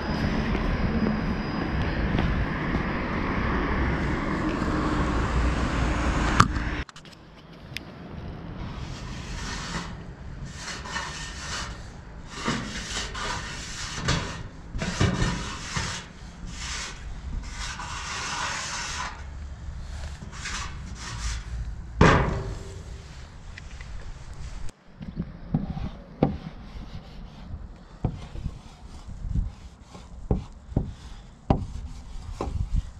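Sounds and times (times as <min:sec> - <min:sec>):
marker scraping over rough surface: 0:08.8 - 0:21.7, 0:25.5 - 0:32.9.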